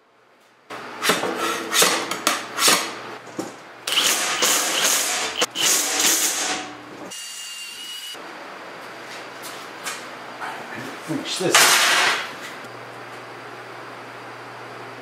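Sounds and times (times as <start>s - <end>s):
cordless drill boring sheet metal: 3.9s - 6.6s.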